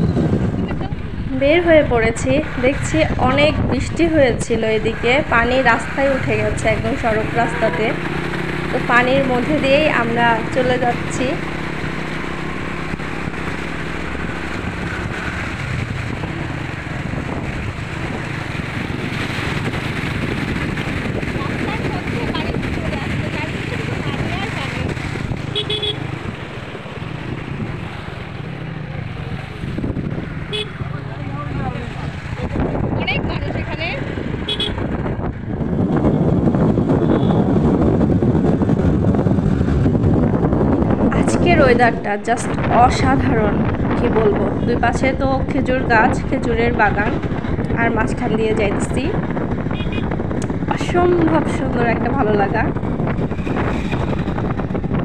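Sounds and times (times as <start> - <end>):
motorbike engine: 0.0 - 55.0
road noise: 0.0 - 55.0
water sloshing from wheels: 0.0 - 55.0
wind noise on microphone: 0.0 - 55.0
auto-rickshaw splashing through water: 2.4 - 34.9.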